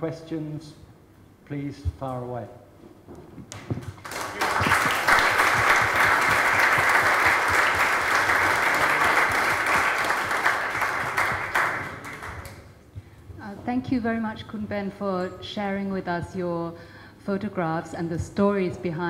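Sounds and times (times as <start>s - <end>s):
audience applauding: 3.8s - 12.8s.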